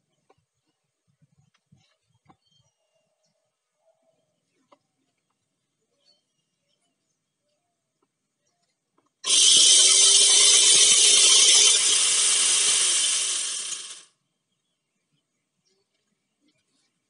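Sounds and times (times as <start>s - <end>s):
electric chainsaw running: 9.2s - 14.1s.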